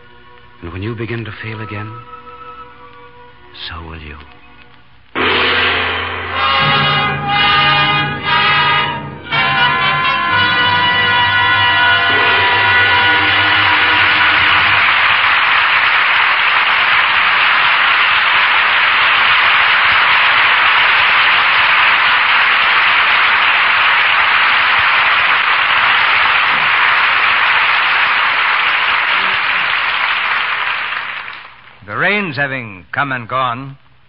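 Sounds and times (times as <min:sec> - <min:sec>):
closing music: 0:00.0 - 0:31.0
audience applauding: 0:08.4 - 0:31.8.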